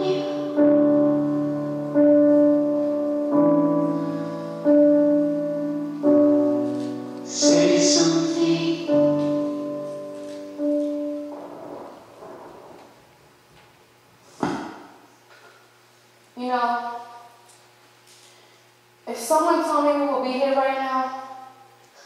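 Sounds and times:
slow piano chords: 0:00.0 - 0:13.5.

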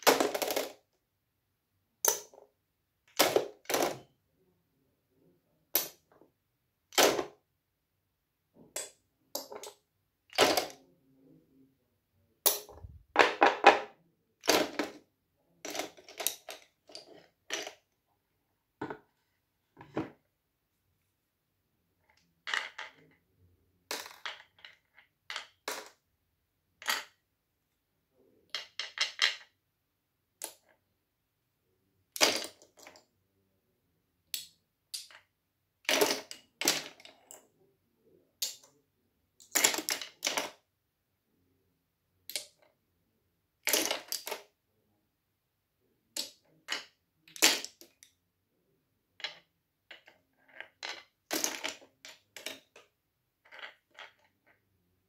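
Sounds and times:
wooden toy pieces clacking: 0:02.0 - 0:02.4, 0:12.5 - 0:15.0, 0:15.7 - 0:17.8, 0:22.4 - 0:23.1, 0:23.9 - 0:26.0, 0:28.5 - 0:29.5, 0:32.2 - 0:33.0, 0:34.4 - 0:35.2, 0:35.9 - 0:37.4, 0:38.4 - 0:38.6, 0:39.4 - 0:40.6, 0:42.3 - 0:42.7, 0:43.6 - 0:44.5, 0:46.2 - 0:48.0, 0:53.4 - 0:54.6.

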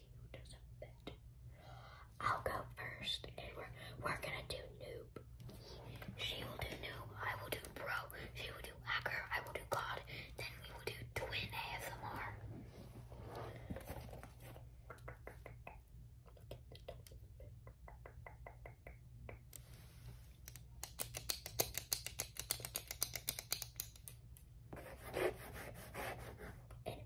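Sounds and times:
tapping and scratching on object: 0:20.8 - 0:25.4.

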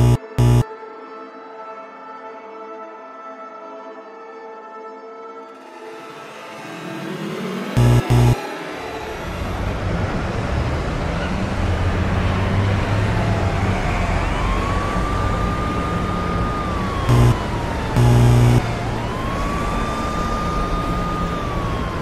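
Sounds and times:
loud low-pitched horn blasts: 0:00.0 - 0:00.6, 0:07.8 - 0:08.4, 0:16.9 - 0:19.2
siren wailing: 0:00.0 - 0:00.6, 0:07.8 - 0:08.4, 0:13.0 - 0:22.0.

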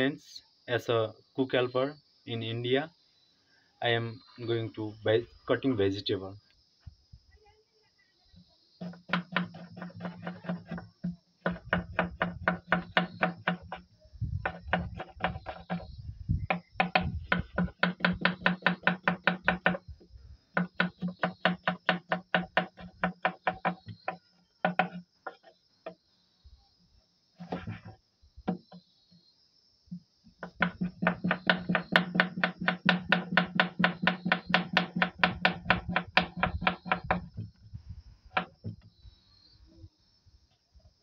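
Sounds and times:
knife slicing onion on board: 0:08.8 - 0:10.9.

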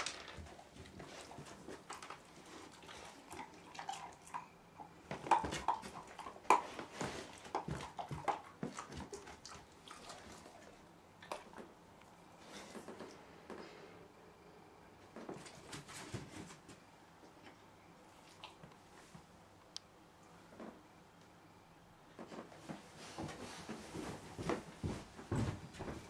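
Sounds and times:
light rustles and scuffs: 0:22.2 - 0:26.0.

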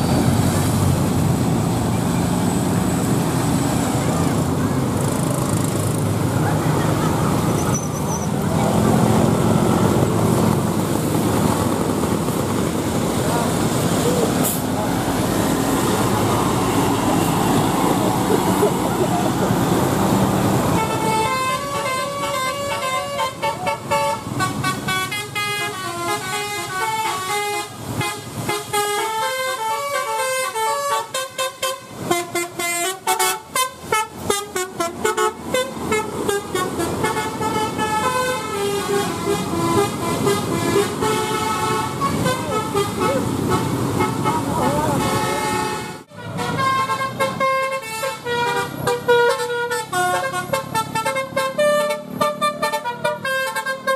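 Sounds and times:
bus engine: 0:00.0 - 0:53.9
traffic noise: 0:00.0 - 0:53.9
bus horn playing melody: 0:20.6 - 0:53.9.

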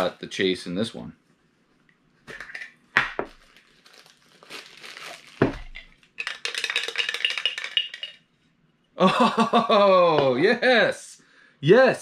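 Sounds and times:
crinkling and rattling contents: 0:03.2 - 0:08.2.

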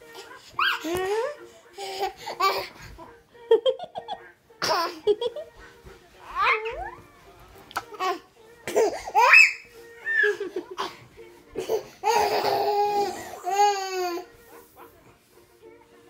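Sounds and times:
toddler laughing and squealing: 0:09.1 - 0:10.4.

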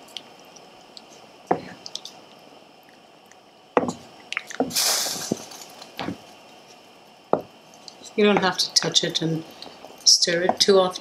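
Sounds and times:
spoon knocking against pot: 0:03.8 - 0:04.0.

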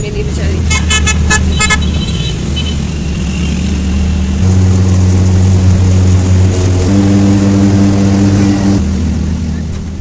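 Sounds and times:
auto-rickshaw engine running: 0:00.0 - 0:10.0.

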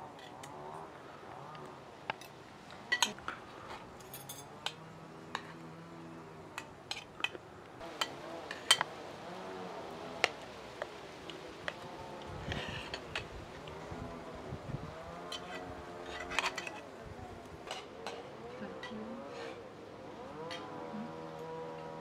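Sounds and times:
utensils clinking on metal platter: 0:04.0 - 0:04.8.

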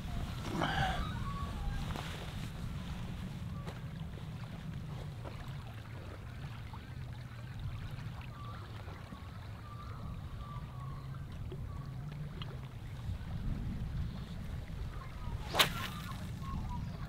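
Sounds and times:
small waves lapping: 0:00.0 - 0:17.0
wind rumbling on microphone: 0:00.0 - 0:17.0.

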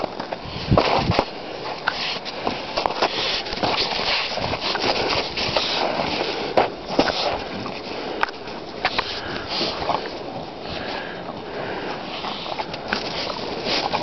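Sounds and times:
dogs sniffing and breathing: 0:00.2 - 0:14.0
snow crunching: 0:00.7 - 0:08.1.

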